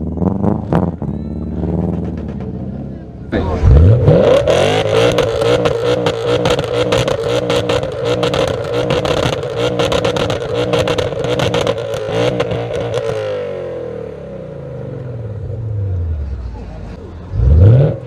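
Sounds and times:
car exhaust at high revs: 3.4 - 16.1, 16.9 - 18.0.

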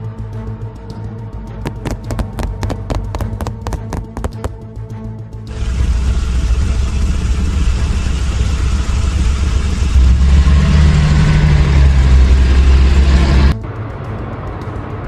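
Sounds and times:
half-track engine running: 5.5 - 13.6
motorcycle engine: 5.5 - 13.6.

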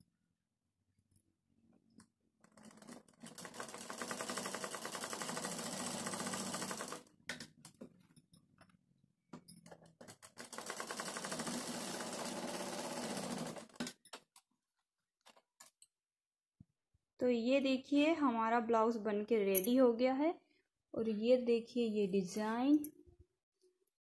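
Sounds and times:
sewing machine stitching: 2.4 - 7.1, 10.0 - 13.9.

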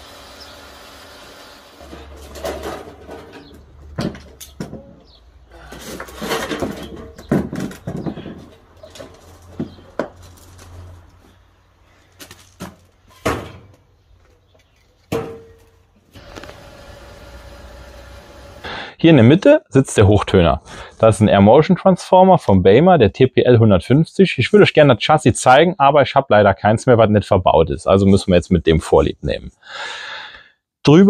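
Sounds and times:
metal scraping: 1.8 - 3.8, 5.6 - 11.2
metal mould knocks and clanks: 2.0 - 5.2, 5.8 - 10.2, 12.6 - 13.8, 15.1 - 15.7.

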